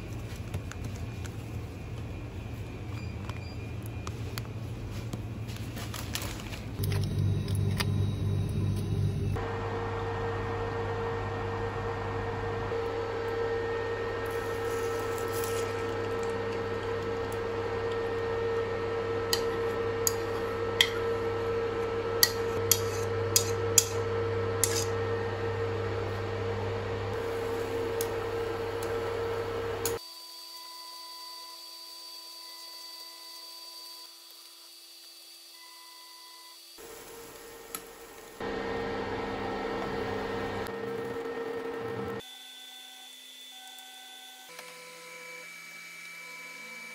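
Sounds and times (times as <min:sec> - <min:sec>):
induction hob humming: 0:01.2 - 0:30.0, 0:35.7 - 0:42.3.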